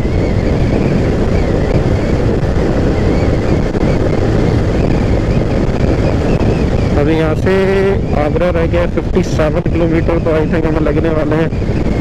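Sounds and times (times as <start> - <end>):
motorcycle engine running: 0.0 - 8.1
wind rushing over microphone: 0.0 - 12.0.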